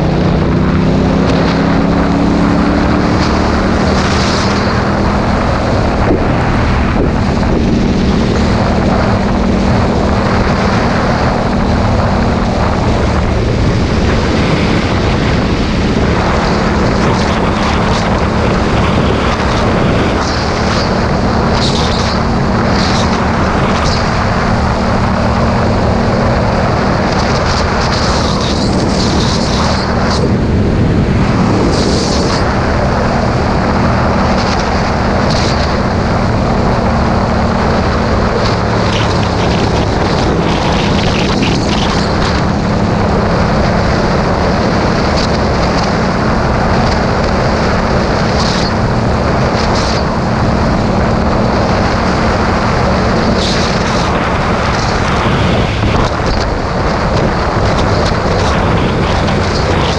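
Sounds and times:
motorcycle engine cruising: 0.0s - 59.9s
wind rush on microphone: 0.0s - 59.9s.

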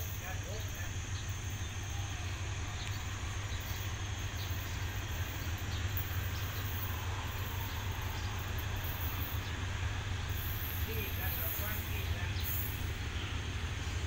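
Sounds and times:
diesel locomotive rumbling: 0.0s - 14.0s.

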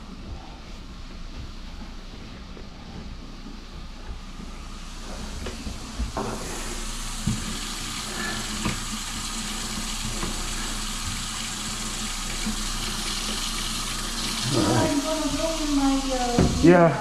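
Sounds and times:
faucet water into steel sink: 5.0s - 17.0s.

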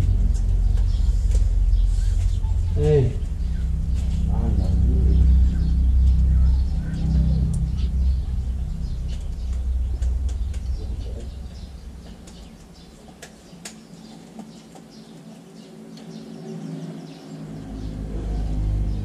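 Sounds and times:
low rumble: 0.0s - 13.6s, 17.6s - 19.0s
small birds chirping: 0.0s - 19.0s.

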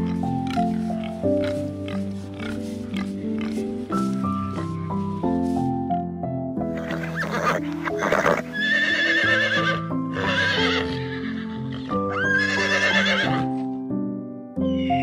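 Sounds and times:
background music: 0.0s - 15.0s
horse whinnying: 6.8s - 13.5s.

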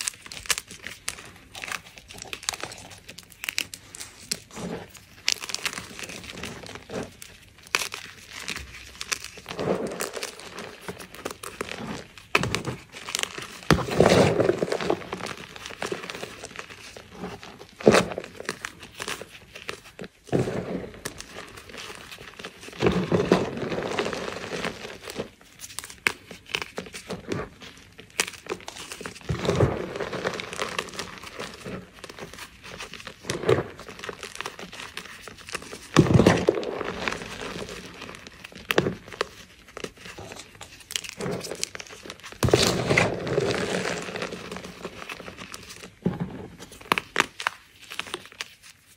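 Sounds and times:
chalk crunching by hand: 0.0s - 27.5s.

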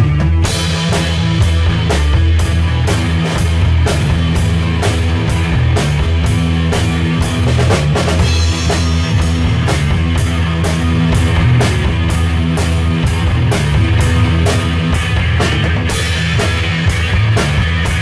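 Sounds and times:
drum kit with cymbal hits: 0.0s - 18.0s
rock band playing: 0.0s - 18.0s.

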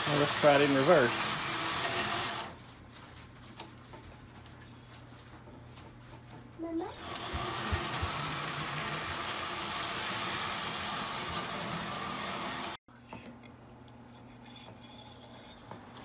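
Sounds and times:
toy train electric motor hum: 0.0s - 2.6s, 6.9s - 12.8s.

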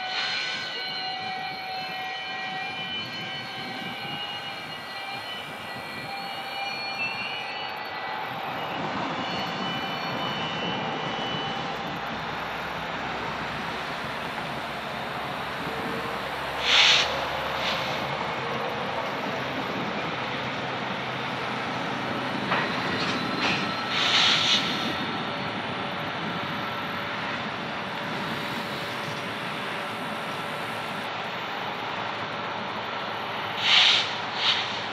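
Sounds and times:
distant freight train rumbling: 0.0s - 34.9s
loud hissing bursts: 15.2s - 18.2s, 23.9s - 24.9s, 33.6s - 34.9s.

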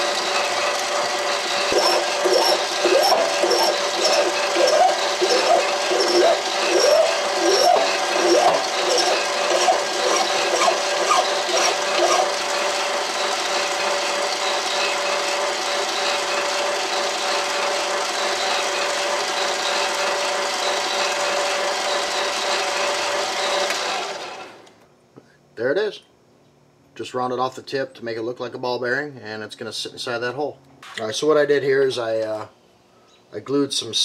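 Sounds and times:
lathe motor whine: 0.0s - 24.8s.

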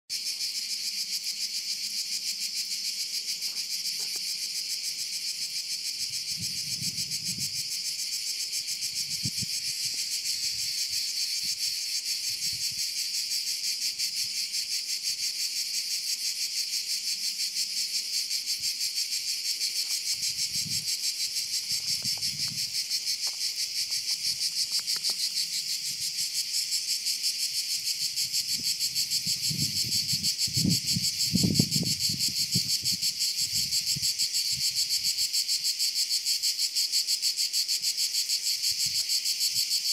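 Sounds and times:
cicadas buzzing: 0.1s - 39.9s.

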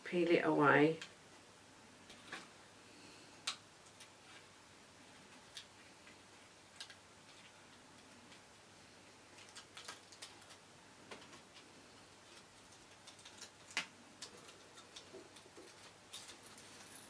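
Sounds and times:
acetate and card crackling: 9.3s - 17.0s.

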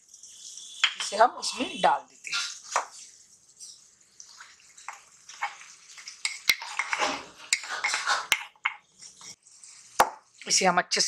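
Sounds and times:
light sizzling: 0.0s - 11.0s
food scraping and rustling in pan: 2.2s - 10.4s.

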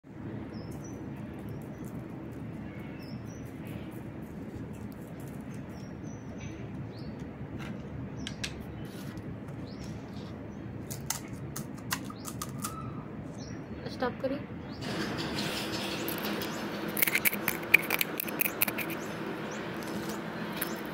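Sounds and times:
low background hum: 0.0s - 20.9s
small birds chirping: 0.4s - 11.3s, 11.9s - 14.9s, 15.7s - 20.9s
crisp fried shell cracking: 16.9s - 19.0s.

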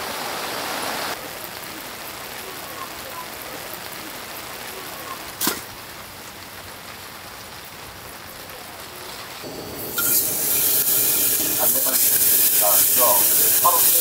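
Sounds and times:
steady background hiss: 1.0s - 14.0s
meat sizzling in hot pan: 9.4s - 14.0s.

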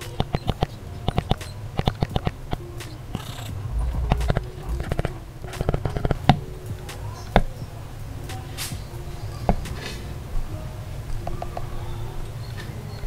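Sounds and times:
low steady hum: 2.4s - 8.2s.

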